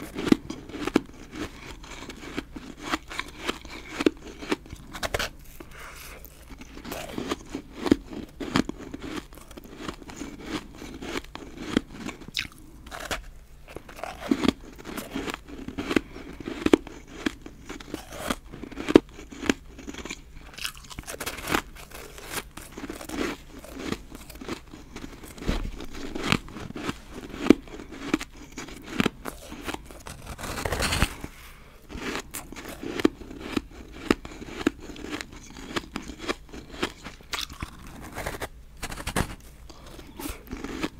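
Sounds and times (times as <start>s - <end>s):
crunchy ice being chewed: 0.0s - 40.9s.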